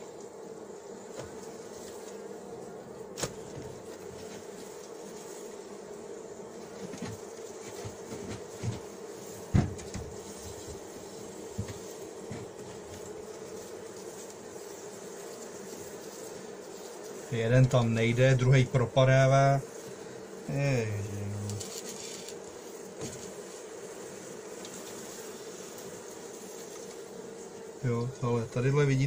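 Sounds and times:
bees humming: 0:00.0 - 0:29.0
hive tool knocking on wooden frames: 0:01.0 - 0:02.2, 0:02.8 - 0:05.1, 0:06.5 - 0:14.6, 0:17.5 - 0:19.0, 0:19.8 - 0:27.2.

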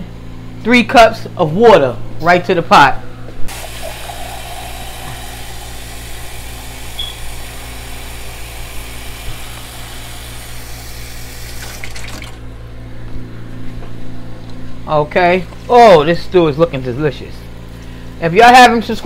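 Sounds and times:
low steady hum: 0:00.0 - 0:19.0
water pouring into pot: 0:03.5 - 0:12.4.

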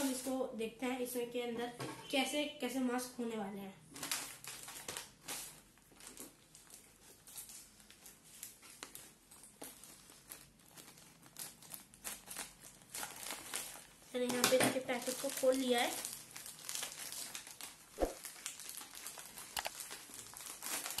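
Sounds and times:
plastic bag crinkling: 0:00.0 - 0:00.4, 0:03.9 - 0:21.0
scissors cutting plastic: 0:07.2 - 0:15.9, 0:19.1 - 0:21.0.

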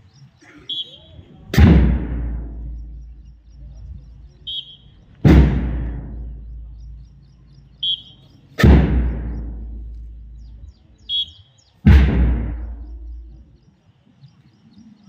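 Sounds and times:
deep drum beats ringing out: 0:01.4 - 0:10.8, 0:11.8 - 0:13.6.

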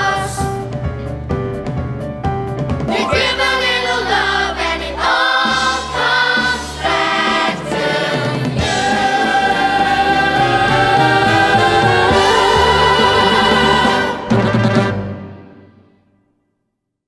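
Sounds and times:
choir singing: 0:00.0 - 0:00.5, 0:02.9 - 0:15.0.

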